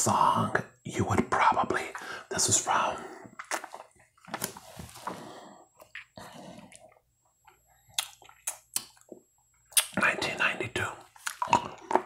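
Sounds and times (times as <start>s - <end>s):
sharp mouth clicks: 7.9s - 9.0s, 9.7s - 10.0s.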